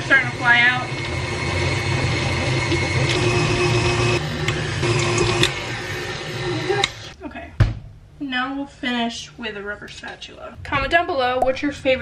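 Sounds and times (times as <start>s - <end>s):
stand mixer motor hum: 0.0s - 7.2s.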